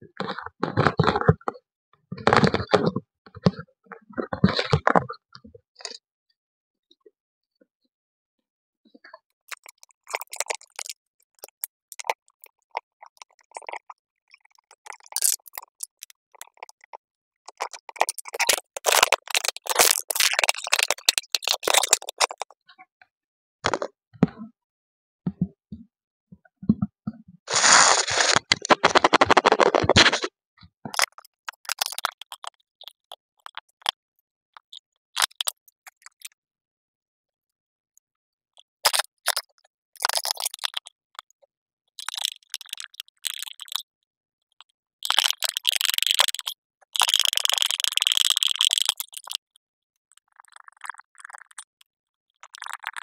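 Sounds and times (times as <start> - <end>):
plastic parts scraping: 2.2 - 5.2, 27.5 - 30.3
plastic parts clicking and rattling: 17.5 - 22.5, 27.5 - 30.3.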